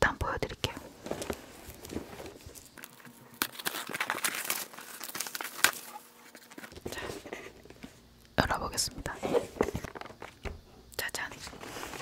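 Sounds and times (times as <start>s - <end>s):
packaging crinkling and tearing: 1.0s - 6.9s.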